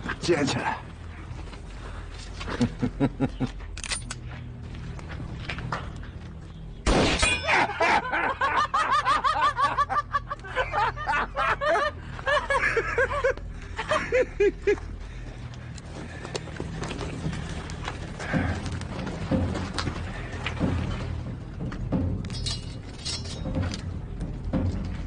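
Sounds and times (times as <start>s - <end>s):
men laughing loudly: 2.5s - 3.6s, 7.4s - 15.0s.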